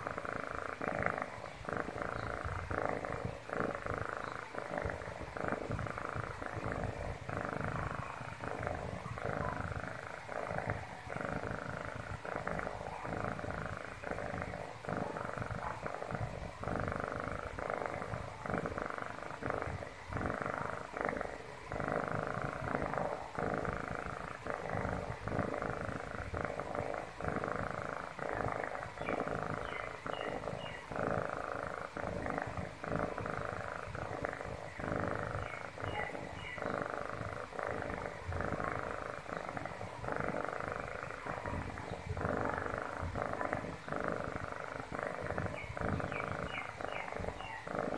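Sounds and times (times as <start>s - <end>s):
kitten purring: 0.0s - 47.9s.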